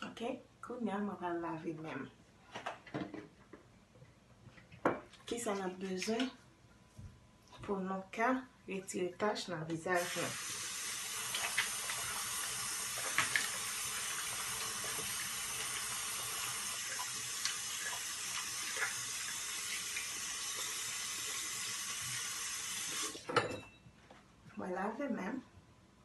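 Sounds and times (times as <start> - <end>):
water splashes: 11.0 - 21.4.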